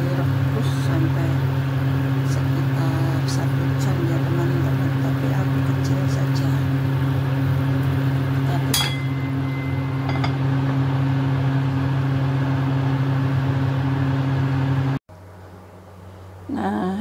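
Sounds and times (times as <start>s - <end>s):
low hum: 0.0s - 17.0s
metal lid clinking on pot: 8.6s - 10.4s.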